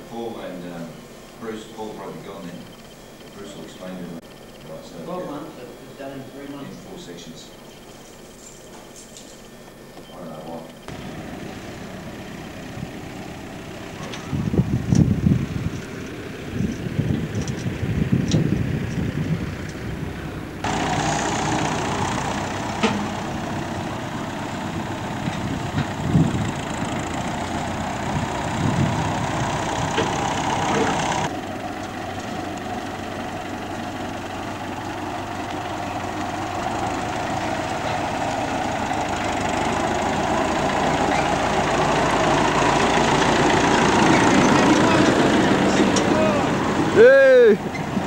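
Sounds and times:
tractor engine running: 10.8 - 48.0.

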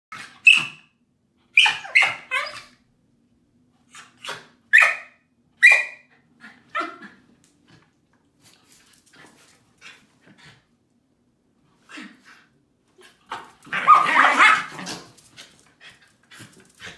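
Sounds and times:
dog barking high-pitched: 0.1 - 0.9, 1.5 - 2.7, 4.3 - 6.1, 13.7 - 14.8.

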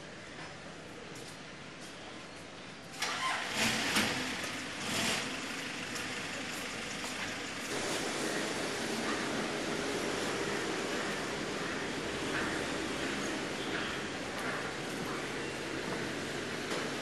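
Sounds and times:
traffic hum: 2.5 - 17.0.

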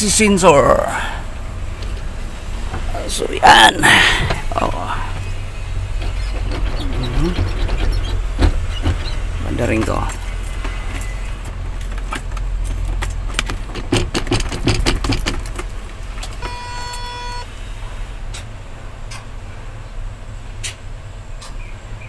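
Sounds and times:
keys jangling: 9.9 - 17.1
electronic beep: 16.4 - 17.5.

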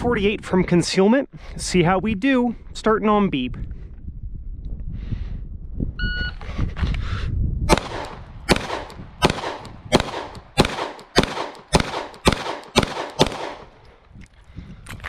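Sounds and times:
pistol shots: 7.7 - 13.8.

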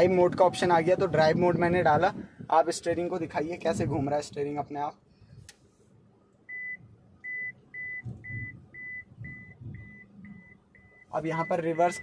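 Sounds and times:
short high-pitched parking beeps: 6.5 - 12.0.

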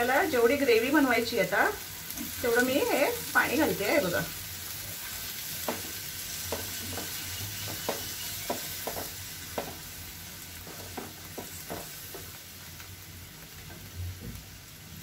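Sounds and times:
gravy sizzling in a frying pan: 0.0 - 15.0
spatula tapping and scraping pan: 5.6 - 9.9, 10.6 - 12.4.

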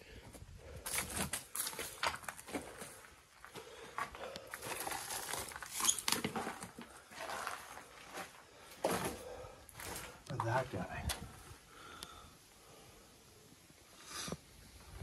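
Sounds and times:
footsteps crunching on gravel: 0.9 - 11.0.

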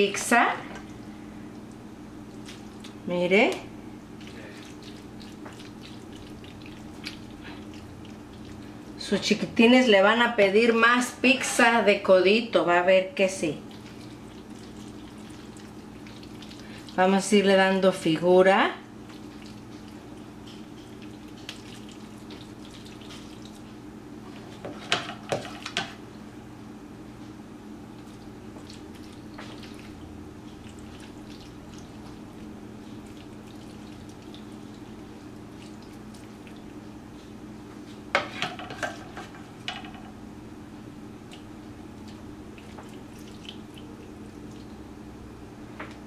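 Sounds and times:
faint steady hum: 0.0 - 46.0.

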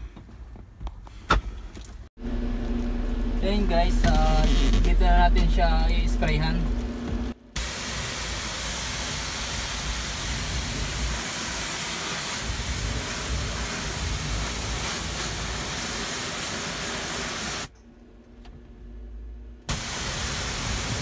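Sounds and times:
pressure washer spray hissing: 7.6 - 17.7, 19.7 - 21.0.

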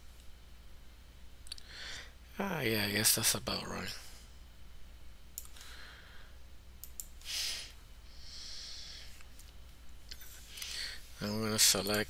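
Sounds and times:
steady low hum: 0.0 - 12.0
person breathing close: 1.6 - 2.2, 5.5 - 6.4, 7.2 - 9.2, 10.4 - 11.2
mouse clicks: 6.8 - 7.2.

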